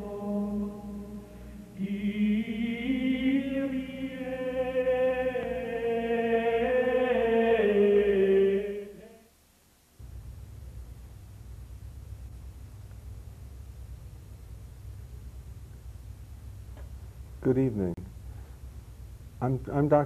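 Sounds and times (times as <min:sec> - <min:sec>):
choir chanting held notes: 0:00.0 - 0:09.3.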